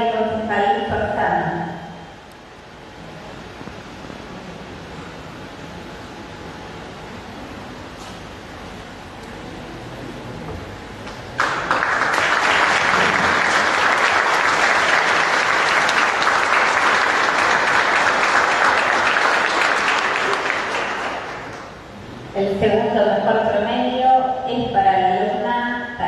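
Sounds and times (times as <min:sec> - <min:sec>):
audience applauding: 0:11.4 - 0:21.8.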